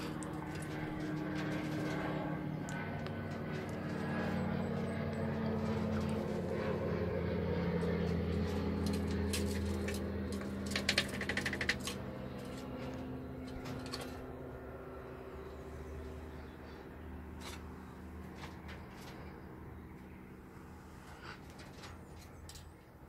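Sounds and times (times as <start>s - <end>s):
steady low hum: 0.0s - 23.0s
squirrel scratching in nest box: 8.8s - 12.7s.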